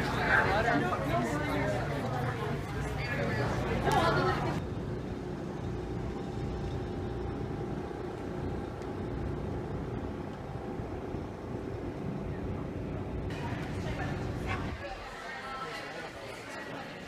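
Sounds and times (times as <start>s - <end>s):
low outdoor rumble: 0.0s - 15.3s.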